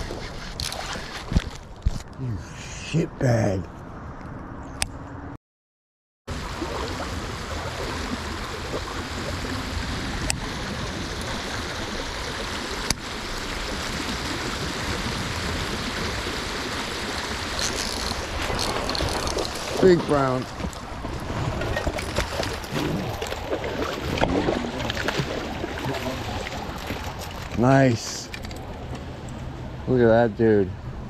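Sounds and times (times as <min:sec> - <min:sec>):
creek water rushing: 0:06.3 - 0:28.1.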